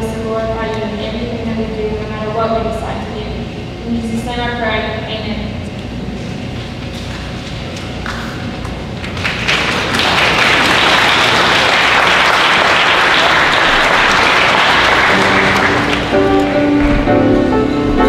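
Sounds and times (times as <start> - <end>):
audience applauding: 9.0 - 17.0.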